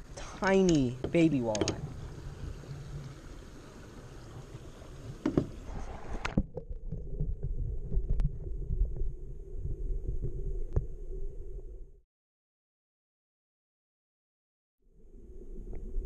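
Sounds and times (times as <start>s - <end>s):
faint underwater clicks: 0.0s - 9.1s
muffled underwater rumbling: 0.0s - 12.0s.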